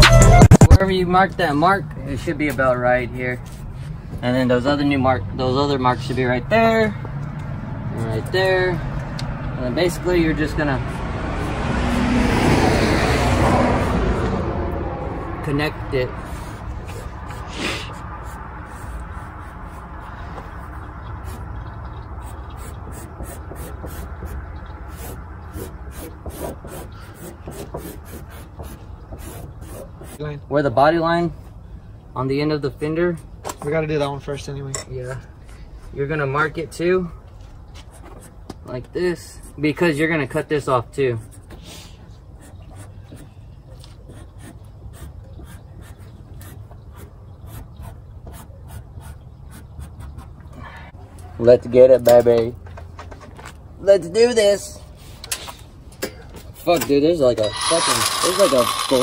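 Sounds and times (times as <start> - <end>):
fingers rubbing masking tape: 22.2 - 30.2, 44.0 - 50.3.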